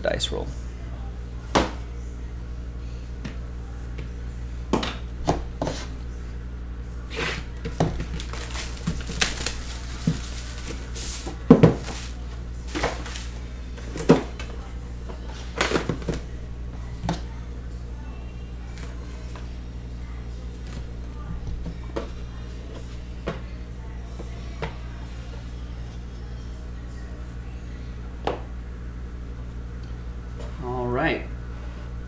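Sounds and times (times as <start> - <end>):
plastic wrap crinkling and tearing: 8.0 - 13.3.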